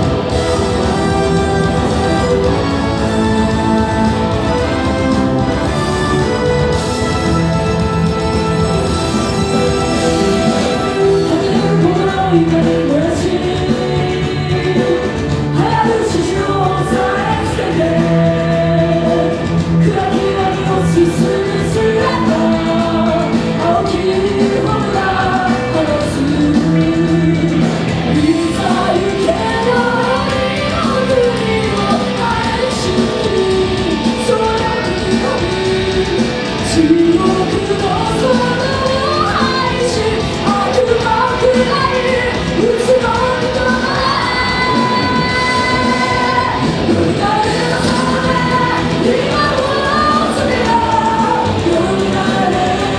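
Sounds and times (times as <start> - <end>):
electric guitars: 0.0 - 52.9
person singing rock song: 0.0 - 52.9.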